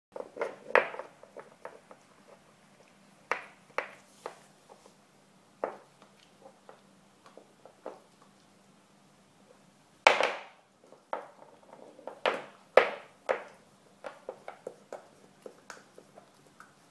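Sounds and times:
puppy teeth gnawing hoof chew: 13.4 - 16.9.

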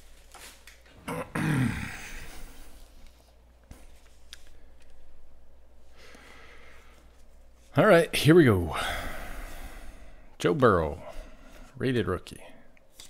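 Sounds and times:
man grunting: 1.0 - 2.5.

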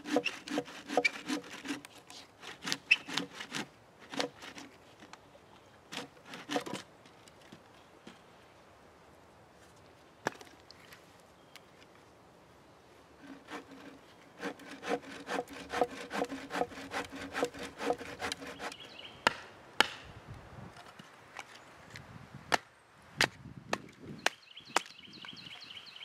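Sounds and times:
hand saw cutting branch: 0.0 - 4.8, 5.9 - 6.9, 13.2 - 20.0
wooden knocks splitting kindling: 5.9 - 6.8.

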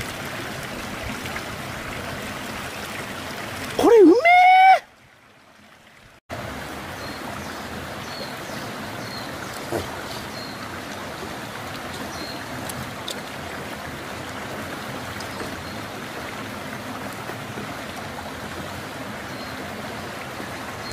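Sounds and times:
river water rushing over rocks: 6.3 - 20.9.

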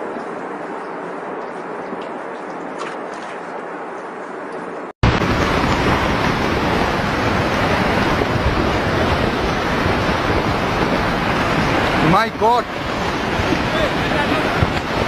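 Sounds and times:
landslide rumbling: 5.0 - 15.0.

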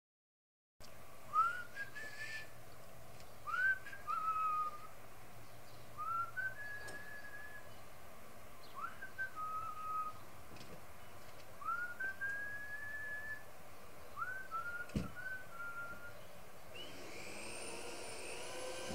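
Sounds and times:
person whistling: 1.3 - 2.5, 3.5 - 4.8, 11.6 - 13.4, 14.2 - 16.2.

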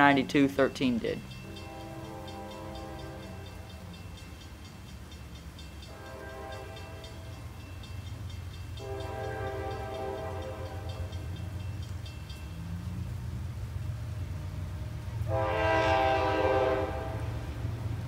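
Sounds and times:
fast regular ticking: 0.0 - 13.1
locomotive air horn blasts: 1.4 - 3.5, 5.9 - 7.3, 8.8 - 11.1, 15.2 - 17.4
diesel engine rumble: 11.0 - 15.7.

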